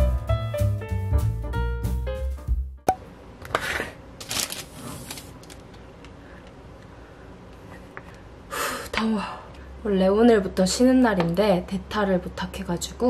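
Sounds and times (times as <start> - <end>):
plastic bag rustling: 4.2 - 5.8.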